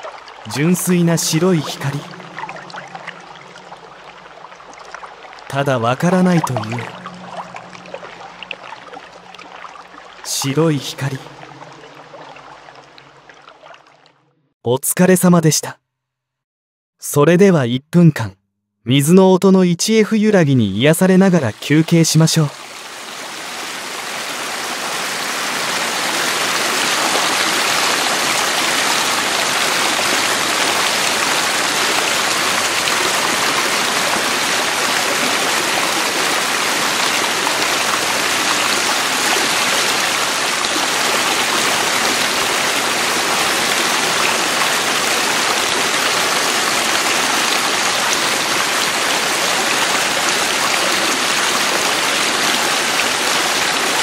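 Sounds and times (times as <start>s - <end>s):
stream water rushing: 0.0s - 14.2s, 21.3s - 54.0s.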